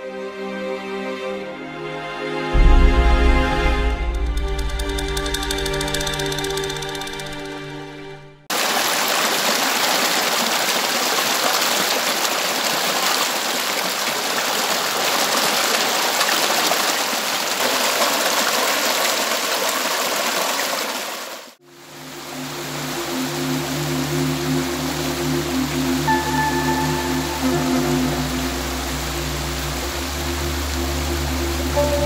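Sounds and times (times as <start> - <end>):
soft music: 0.0 - 8.5, 21.6 - 32.0
water rushing over rocks: 8.5 - 32.0.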